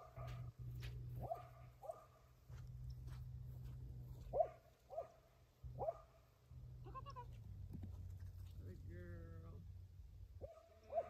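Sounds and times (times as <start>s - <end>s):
dog barking in high yips: 10.4s - 11.0s.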